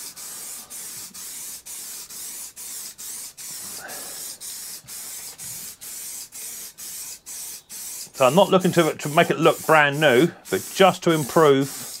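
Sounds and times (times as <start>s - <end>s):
aerosol can spraying: 0.0s - 12.0s.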